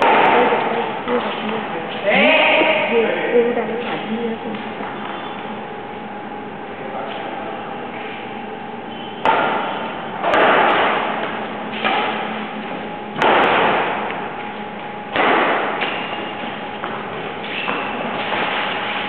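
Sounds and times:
rackets hitting shuttlecock: 0:09.2 - 0:12.4, 0:13.2 - 0:14.2, 0:15.1 - 0:19.0.

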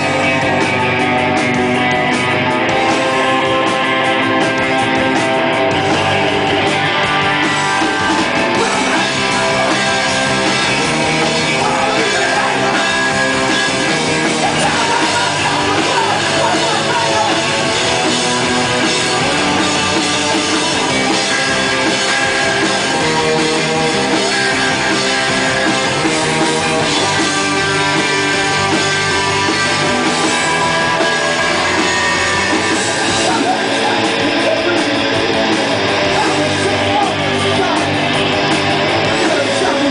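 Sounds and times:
bass guitar: 0:00.0 - 0:39.9
drums: 0:00.0 - 0:39.9
electric guitar: 0:00.0 - 0:39.9
person singing: 0:08.5 - 0:10.1, 0:11.2 - 0:18.8.

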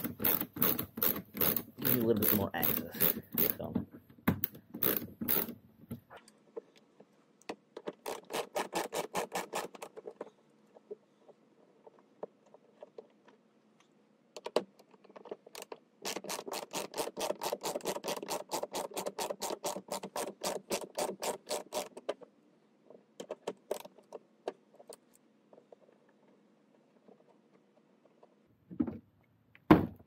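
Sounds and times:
ratchet wrench clicking: 0:00.0 - 0:03.6, 0:04.8 - 0:05.6
loose clicks and taps: 0:00.0 - 0:08.1.

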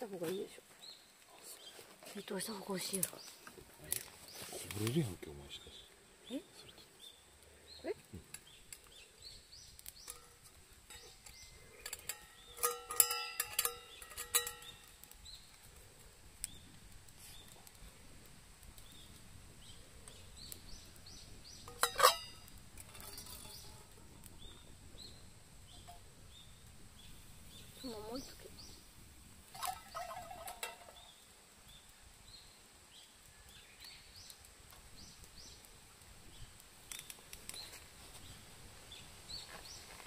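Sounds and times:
birds chirping: 0:00.0 - 0:18.0, 0:18.7 - 0:28.9, 0:29.5 - 0:40.0
tableware clinking: 0:11.9 - 0:14.8, 0:21.7 - 0:23.7.

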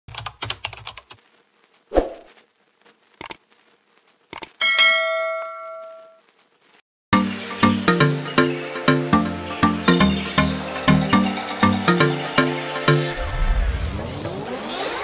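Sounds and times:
mouse-like clicks: 0:04.3 - 0:04.6
bell-like notification ding: 0:04.6 - 0:06.2.

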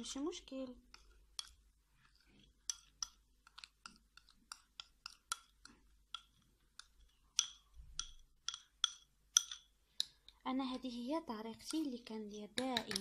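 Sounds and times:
utensil clicking against glass jar: 0:06.1 - 0:10.2, 0:12.4 - 0:13.0.

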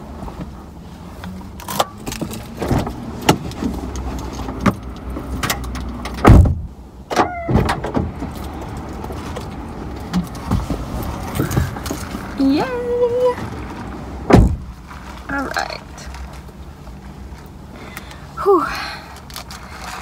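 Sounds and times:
clicks and rustling in car cabin: 0:01.2 - 0:16.7
car door shutting: 0:05.4 - 0:08.4, 0:14.2 - 0:14.7.

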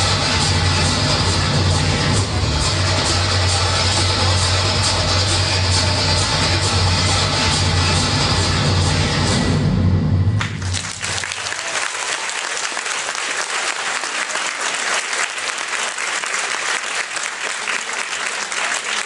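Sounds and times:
music with deep bass: 0:00.0 - 0:10.9
audience applauding: 0:10.4 - 0:19.0.

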